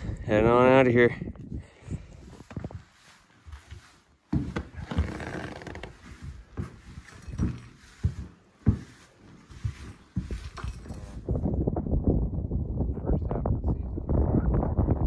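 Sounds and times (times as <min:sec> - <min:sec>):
broom sweeping grit on floor: 0:02.8 - 0:04.2, 0:07.8 - 0:10.6.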